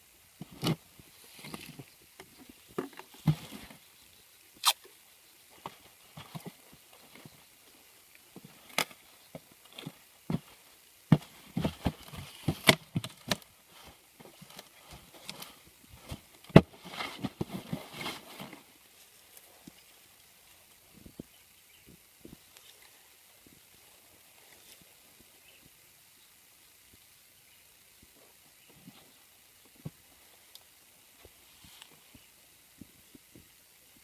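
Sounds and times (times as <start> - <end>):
foam box handling clicks and rustles: 1.4 - 3.8, 8.4 - 18.8.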